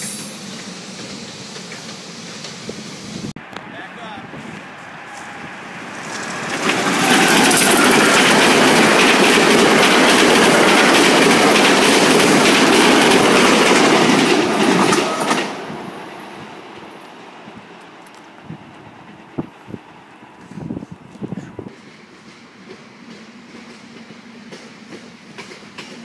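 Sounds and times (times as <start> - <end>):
train passing at speed: 0.0 - 26.0
wheels clacking over rail joints: 5.8 - 17.2, 22.1 - 26.0.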